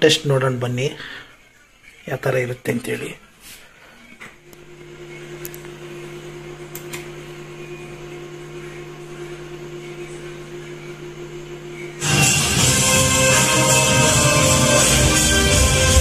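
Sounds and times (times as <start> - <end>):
amplifier electrical hum: 4.1 - 15.9
loud music through speakers: 12.0 - 16.0.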